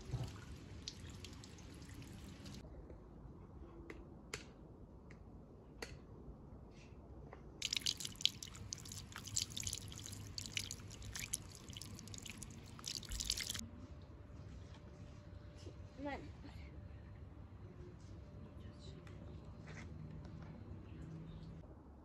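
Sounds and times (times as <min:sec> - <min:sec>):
hose water splashing: 0:00.0 - 0:02.6, 0:07.6 - 0:13.6
water dripping: 0:00.0 - 0:02.6, 0:07.6 - 0:13.6.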